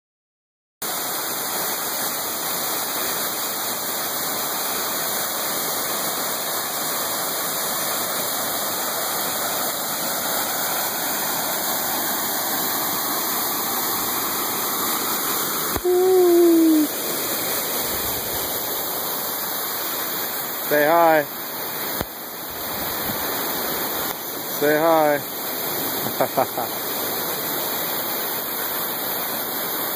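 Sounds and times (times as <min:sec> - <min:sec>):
waterfall rushing: 0:00.8 - 0:29.9
short voice-like sound: 0:15.8 - 0:16.9.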